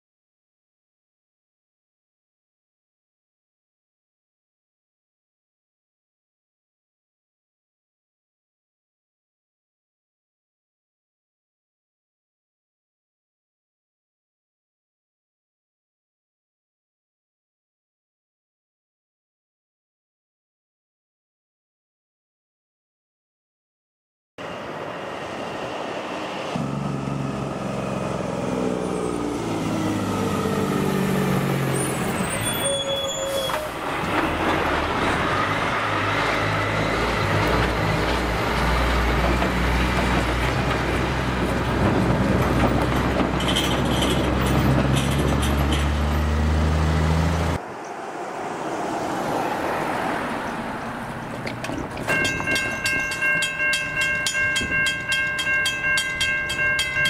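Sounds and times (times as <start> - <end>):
level crossing warning bells: 51.9 - 57.0.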